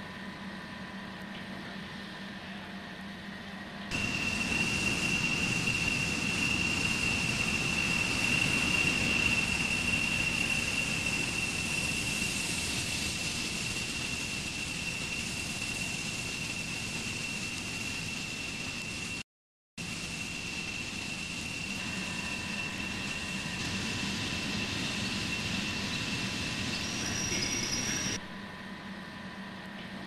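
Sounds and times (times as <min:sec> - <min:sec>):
machine running with high whine: 0:03.9 - 0:19.2.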